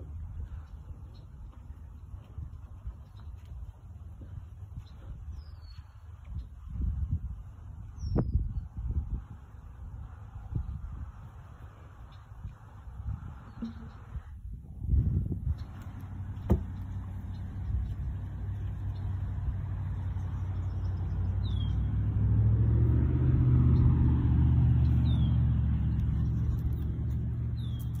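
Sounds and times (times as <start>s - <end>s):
low engine drone: 7.4s - 28.0s.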